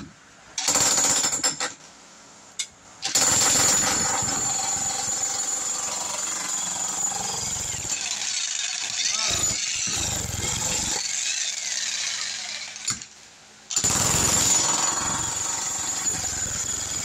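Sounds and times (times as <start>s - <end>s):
jackhammer chiselling concrete: 3.1s - 12.9s, 13.8s - 17.0s.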